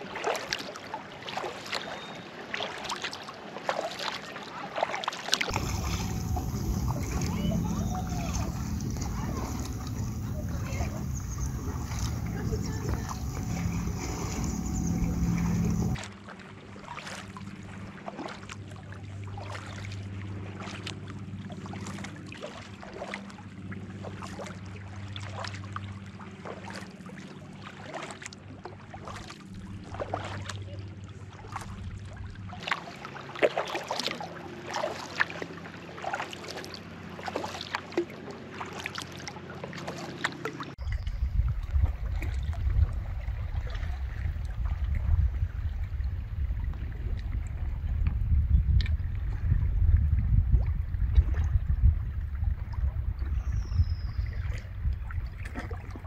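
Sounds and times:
paddle splashing and dripping water: 0:02.5 - 0:04.2, 0:04.8 - 0:16.0, 0:27.7 - 0:30.6, 0:31.3 - 0:49.6, 0:50.6 - 0:51.7, 0:54.0 - 0:56.0
loud low rushing noise: 0:05.5 - 0:16.0
steady low hum: 0:05.5 - 0:16.0.

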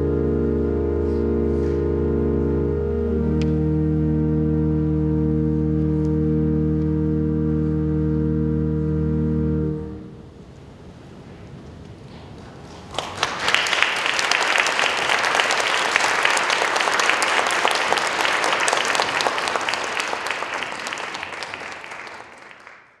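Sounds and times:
audience applauding: 0:12.7 - 0:23.0.

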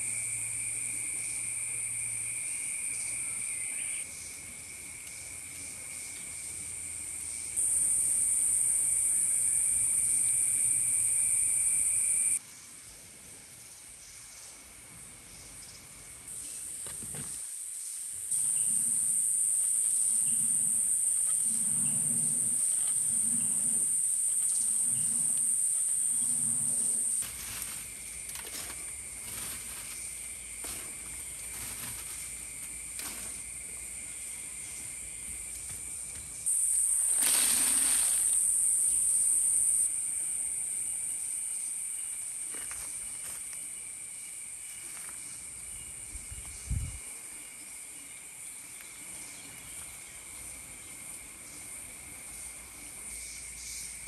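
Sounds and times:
insect chorus buzzing: 0:00.0 - 0:12.4, 0:15.3 - 0:54.0.

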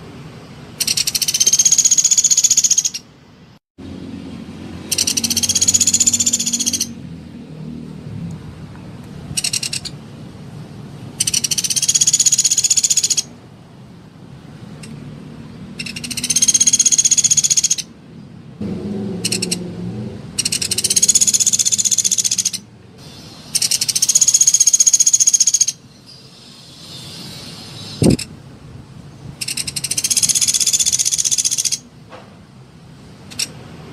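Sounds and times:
woodpecker rattling trills: 0:00.8 - 0:03.1, 0:04.8 - 0:07.0, 0:09.4 - 0:10.0, 0:11.2 - 0:13.3, 0:15.8 - 0:17.9, 0:19.2 - 0:19.6, 0:20.4 - 0:22.7, 0:23.5 - 0:27.1, 0:29.4 - 0:31.8.

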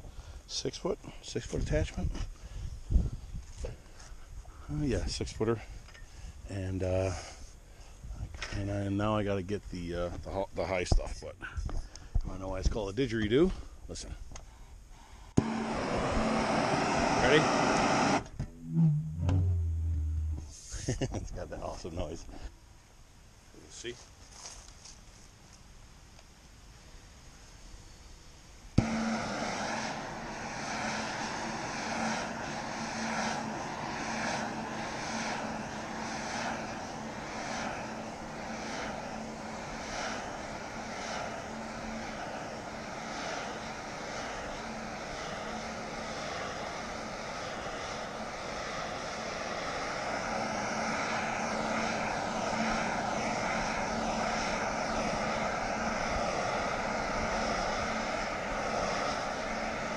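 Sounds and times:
heat gun rushing with hum: 0:15.3 - 0:21.0, 0:28.8 - 0:59.9.

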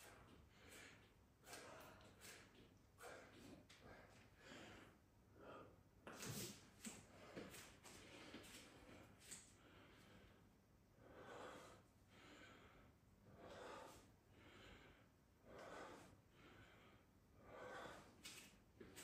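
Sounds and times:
person breathing hard: 0:00.0 - 0:19.0.

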